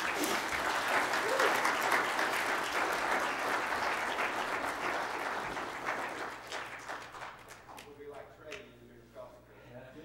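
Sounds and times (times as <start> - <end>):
congregation applauding: 0.0 - 7.9.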